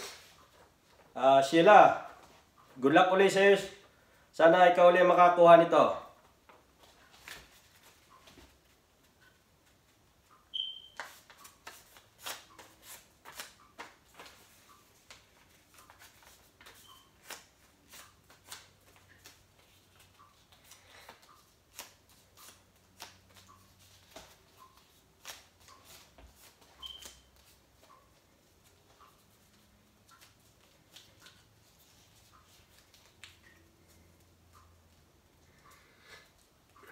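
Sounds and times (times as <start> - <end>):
paper crinkling and crackling: 11.0 - 34.2.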